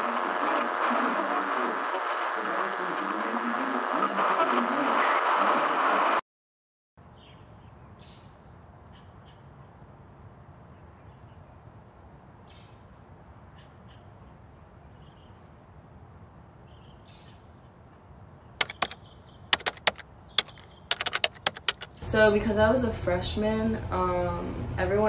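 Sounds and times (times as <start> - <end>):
laptop keyboard typing: 18.6 - 22.0.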